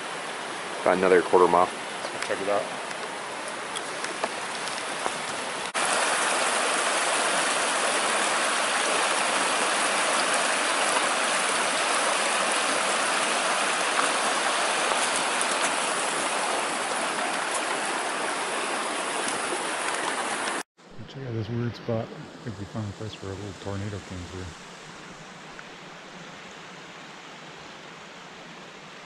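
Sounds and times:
creek water rushing over rocks: 0.0 - 20.7.

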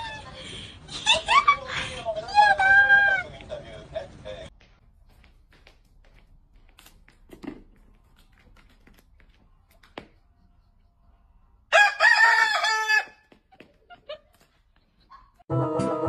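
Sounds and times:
rooster crowing: 11.7 - 13.2.

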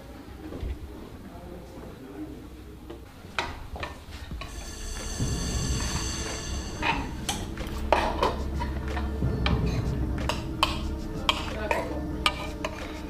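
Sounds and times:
steady low hum: 4.3 - 13.0.

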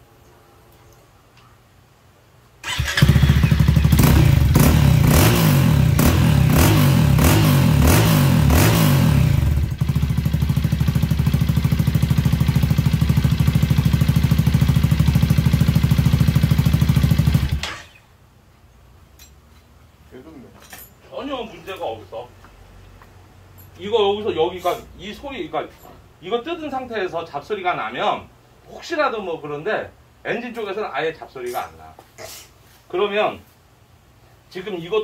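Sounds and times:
scooter engine running: 2.7 - 17.9.

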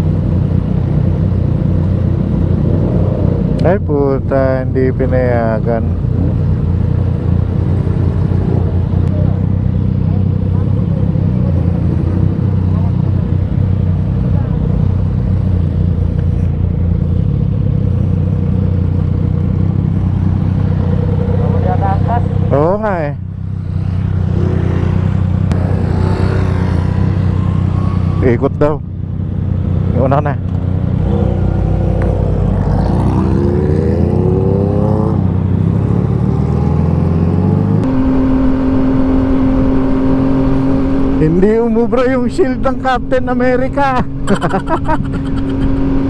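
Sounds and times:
motorcycle engine at low revs: 0.0 - 46.0.

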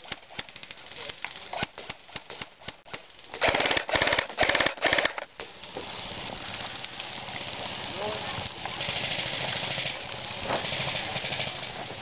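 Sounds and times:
steady hiss: 0.0 - 12.0
airsoft gun firing full auto: 3.4 - 5.3, 8.8 - 11.7.

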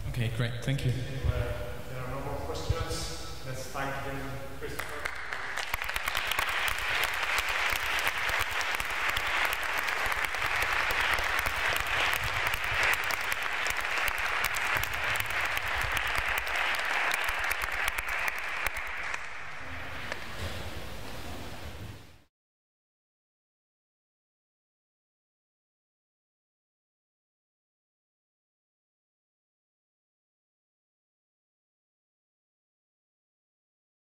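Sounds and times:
audience applauding: 4.8 - 20.4.

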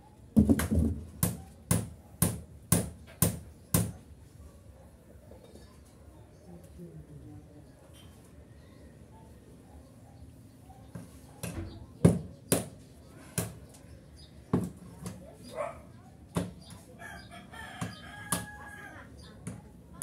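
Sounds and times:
rooster crowing: 17.0 - 19.1.

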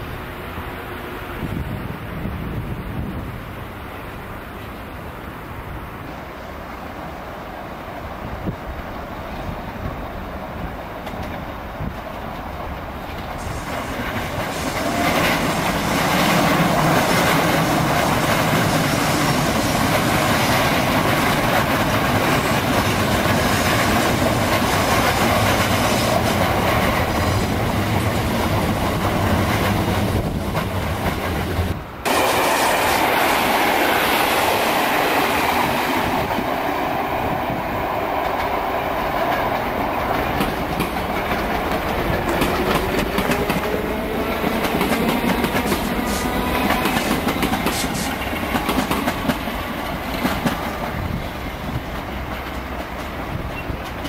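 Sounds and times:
train wheels clattering over rail joints: 10.6 - 36.6, 38.2 - 54.0.

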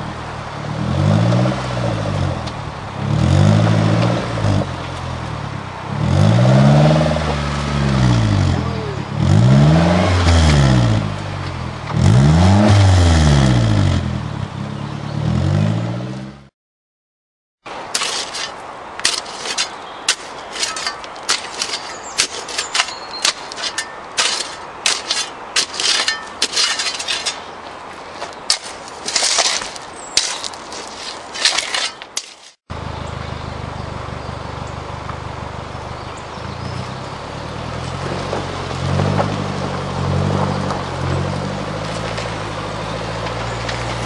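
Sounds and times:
engines running: 0.0 - 16.5, 32.7 - 44.0
shovel digging gravel: 6.0 - 14.0, 17.7 - 32.7, 37.7 - 44.0.

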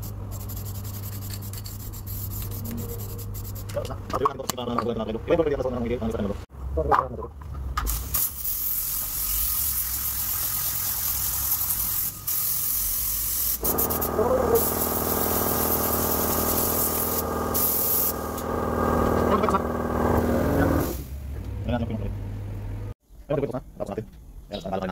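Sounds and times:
paint spray gun hissing: 8.4 - 21.0
motor humming: 13.6 - 20.9.

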